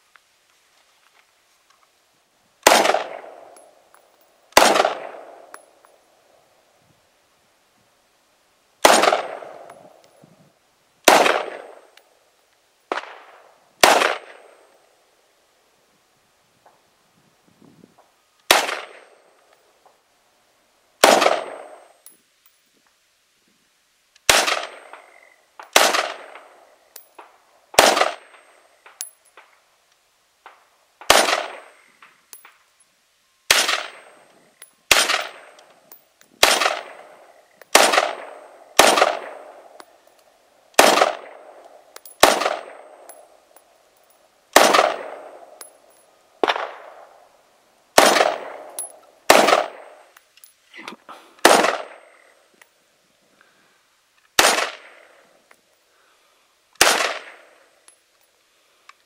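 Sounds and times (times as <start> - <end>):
rifle gunshots with echo: 2.6 - 3.8, 4.6 - 5.6, 8.8 - 9.7, 11.0 - 11.9, 12.9 - 14.7, 18.5 - 19.2, 21.0 - 21.9, 24.3 - 25.0, 25.7 - 26.6, 27.8 - 28.5, 31.1 - 31.8, 33.5 - 34.2, 34.9 - 35.6, 36.4 - 39.8, 40.8 - 43.4, 44.5 - 45.6, 46.4 - 47.2, 48.0 - 50.1, 51.4 - 52.1, 54.4 - 55.1, 56.8 - 57.6.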